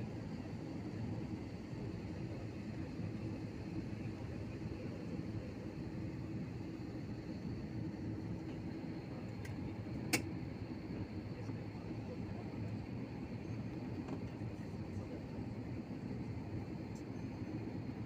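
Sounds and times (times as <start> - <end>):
faint high whine: 0.0 - 18.0
jet engines cabin rumble: 0.0 - 18.0.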